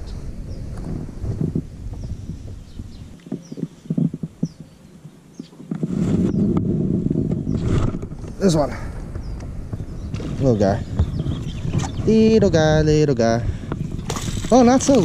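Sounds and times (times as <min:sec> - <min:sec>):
small birds chirping: 0:00.0 - 0:15.0
fishing gear knocking and rattling: 0:13.7 - 0:15.0.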